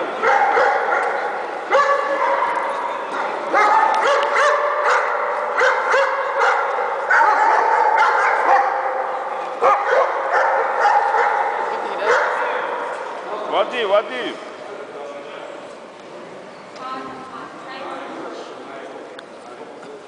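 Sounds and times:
dogs barking and yelping: 0.2 - 2.8, 3.5 - 12.4.

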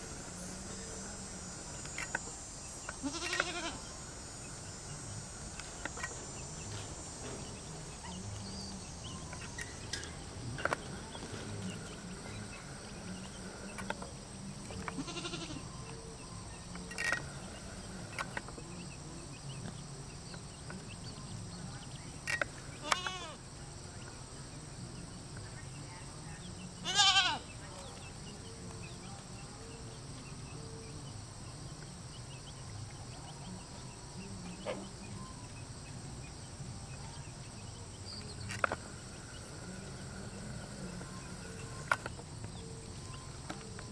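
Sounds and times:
drawn-out animal calls: 14.8 - 15.8, 26.8 - 27.5.

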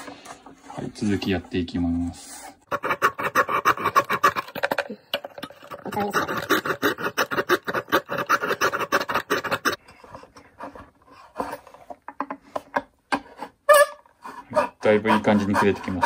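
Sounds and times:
hand saw rasping through wood: 2.7 - 4.5, 5.8 - 9.8, 14.2 - 16.0.

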